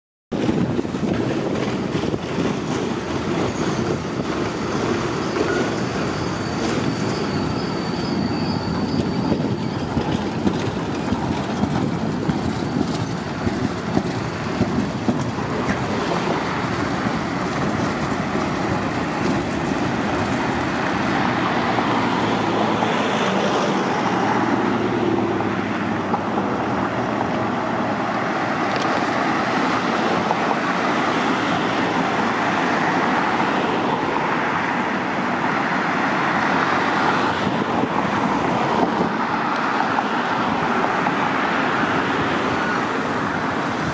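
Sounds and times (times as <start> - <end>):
road traffic noise: 0.3 - 43.9
tram wheels clicking over rail joints: 0.4 - 34.2
high wheel squeal: 2.6 - 24.9.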